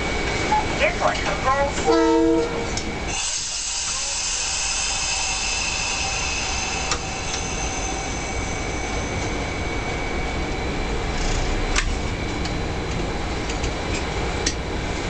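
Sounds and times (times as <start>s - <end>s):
locomotive horn blast: 1.8s - 3.0s
air hissing: 2.5s - 10.5s.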